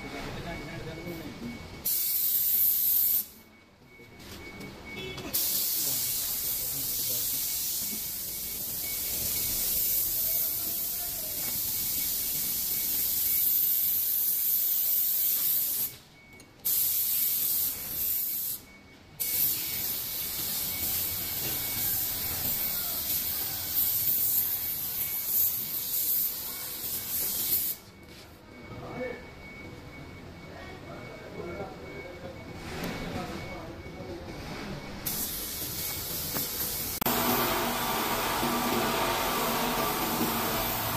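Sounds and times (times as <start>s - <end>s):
spray gun hissing: 37.1s - 40.9s.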